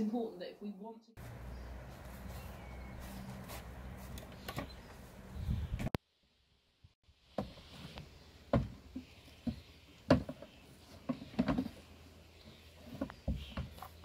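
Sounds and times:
items knocking in wooden playhouse: 9.4 - 11.8.

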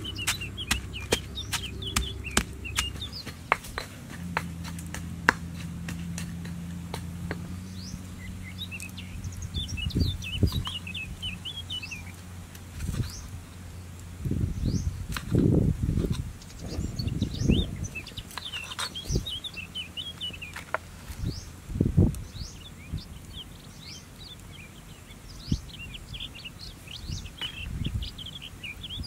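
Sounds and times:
pestle pounding in stone mortar: 0.0 - 7.6
small birds chirping: 0.0 - 29.0
knife chops: 0.2 - 7.5.

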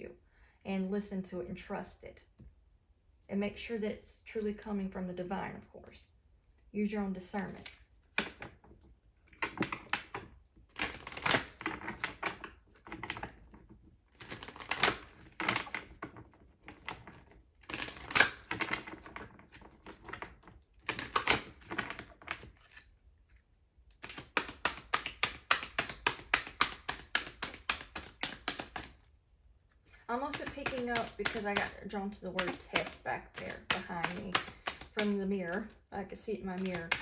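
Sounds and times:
cards being shuffled: 7.4 - 35.8, 36.4 - 37.0.

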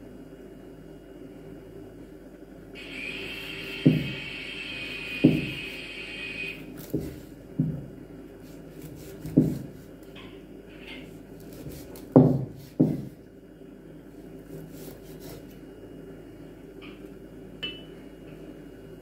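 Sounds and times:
knife knocking on wooden board: 12.2 - 13.1.

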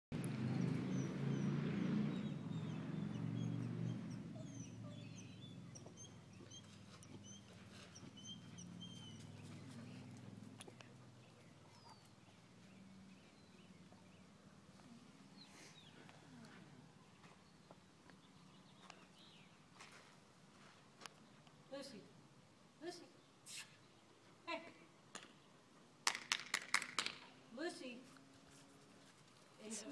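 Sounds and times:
birds chirping: 0.2 - 24.3.

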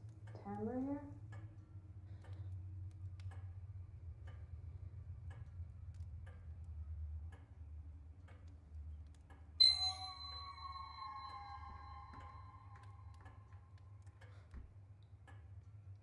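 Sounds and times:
metallic horror stinger: 9.6 - 13.5.

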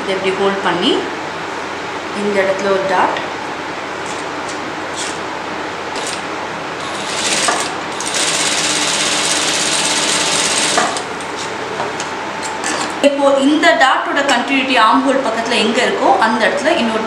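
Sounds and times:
sewing machine stitching: 6.8 - 11.0.

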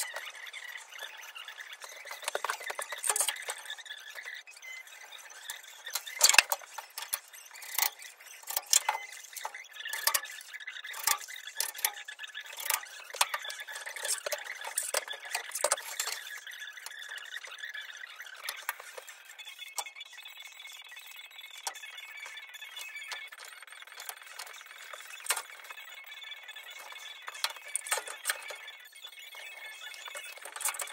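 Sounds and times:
clamps clicking and knocking: 1.8 - 3.8, 5.8 - 17.2, 26.7 - 28.6, 29.9 - 30.9.

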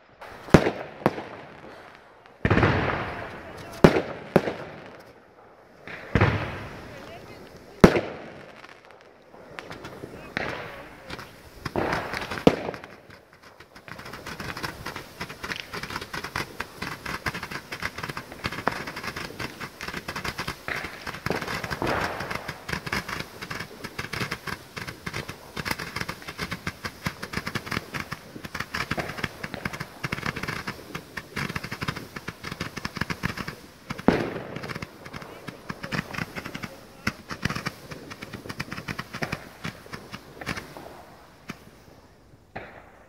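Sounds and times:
rapid firework crackling: 0.0 - 43.0
loud firework bang: 2.4 - 5.1, 5.8 - 8.4, 9.6 - 24.2, 32.7 - 41.6.

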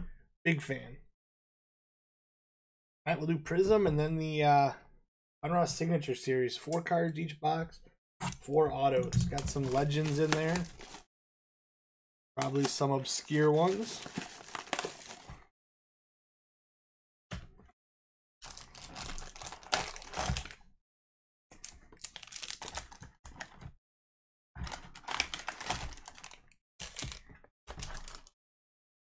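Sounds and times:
card packs rustling and clicking: 9.2 - 11.1, 12.4 - 15.4, 18.4 - 20.6, 21.6 - 23.6, 24.6 - 28.3.

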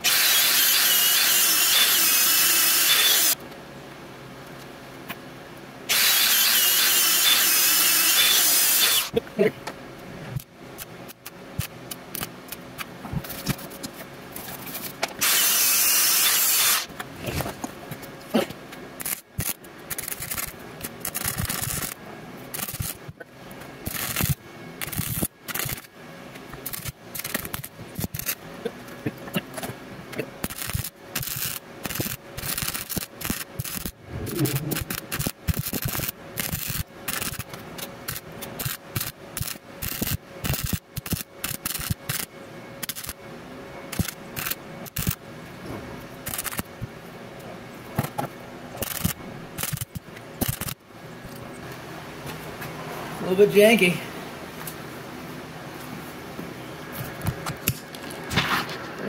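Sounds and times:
welding arc crackling: 0.0 - 3.4, 5.9 - 9.2, 10.4 - 12.6, 15.2 - 16.9, 19.0 - 25.9, 26.5 - 43.2, 43.9 - 45.2, 46.2 - 46.8, 48.8 - 50.8
loud burst of hiss: 15.2 - 16.9.

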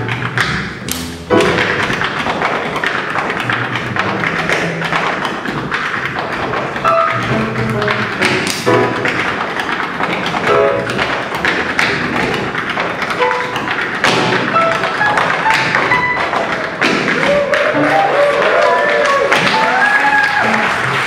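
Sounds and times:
tap shoes tapping on stage: 0.0 - 21.0
instrumental music: 6.8 - 9.3, 10.4 - 11.2, 13.0 - 16.6, 17.2 - 20.9.

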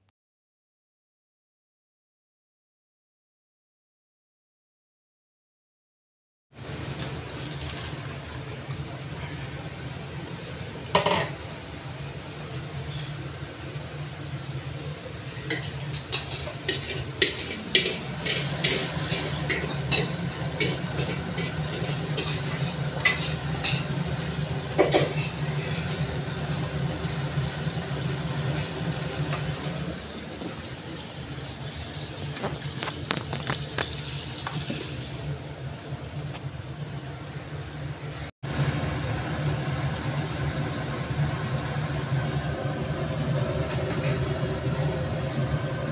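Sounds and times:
sauce frying in a pan: 15.3 - 35.4
utensils clicking on cookware: 15.5 - 24.0.

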